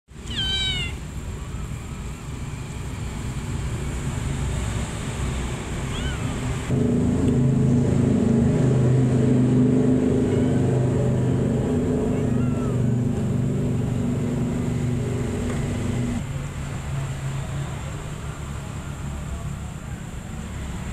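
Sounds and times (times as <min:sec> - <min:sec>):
kitten mewing: 0:00.2 - 0:01.0, 0:05.9 - 0:06.4, 0:11.9 - 0:13.2.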